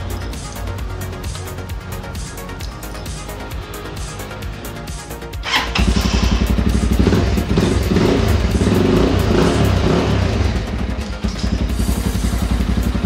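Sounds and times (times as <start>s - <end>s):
motorcycle engine starting and running: 5.2s - 13.0s.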